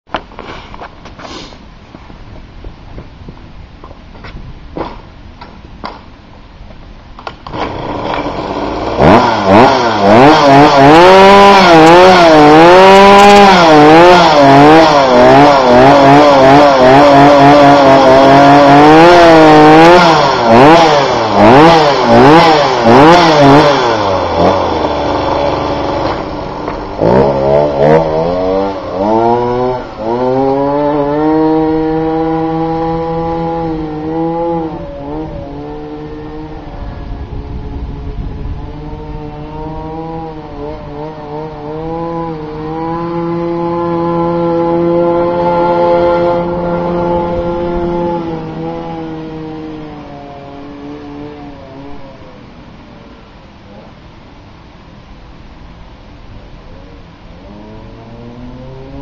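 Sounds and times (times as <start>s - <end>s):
scooter engine revving: 7.2s - 51.9s.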